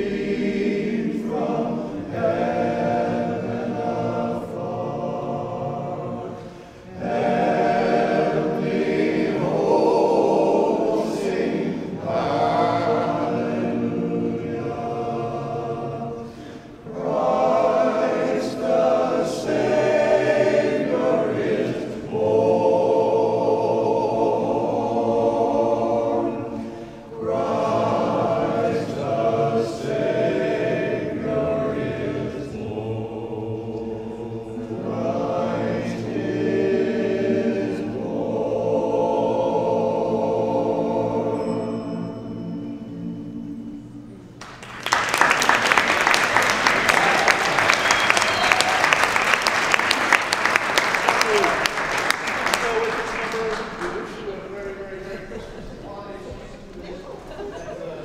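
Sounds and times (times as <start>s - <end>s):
men's chorus singing in harmony: 0.0s - 44.2s.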